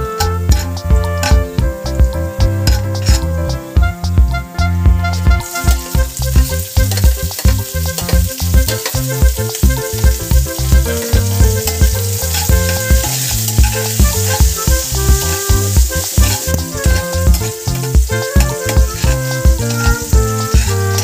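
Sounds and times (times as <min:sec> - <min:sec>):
background music with steady beat: 0:00.0 - 0:21.0
garlic sizzling in oil: 0:05.4 - 0:21.0
spatula stirring in pan: 0:05.5 - 0:21.0.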